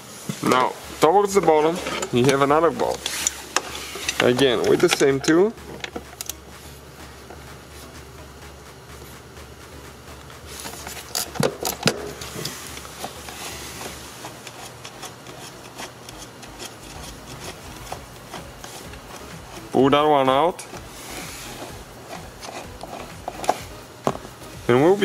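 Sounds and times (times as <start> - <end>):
low steady hum: 0.0 - 25.0
hand tool clicks and rubbing: 1.6 - 6.5, 10.2 - 19.8, 20.6 - 24.4.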